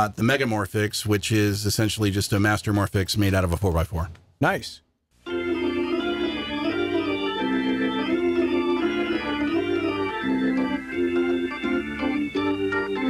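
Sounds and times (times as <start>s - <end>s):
organ-like keyboard chords: 5.2s - 13.0s.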